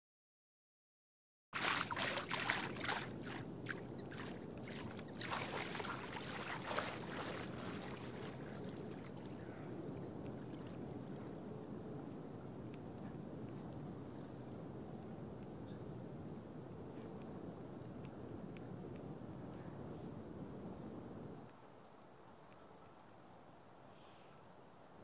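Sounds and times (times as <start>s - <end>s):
water splashing and lapping: 1.6s - 12.3s.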